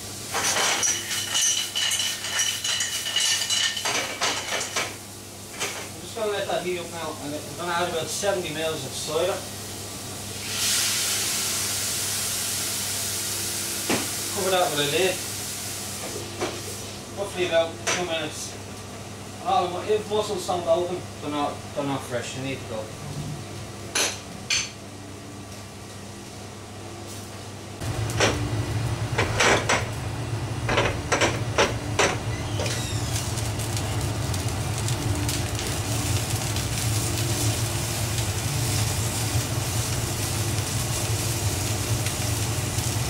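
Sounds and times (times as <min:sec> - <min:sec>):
low stove rumble: 0:00.0 - 0:13.7, 0:14.3 - 0:43.0
pan steaming hiss: 0:08.2 - 0:17.1, 0:32.4 - 0:43.0.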